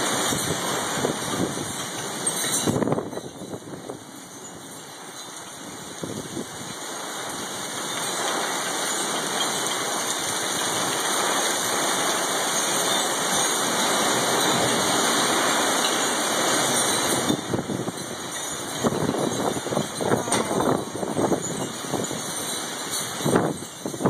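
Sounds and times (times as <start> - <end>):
heavy rain on gravel: 0.0 - 24.0.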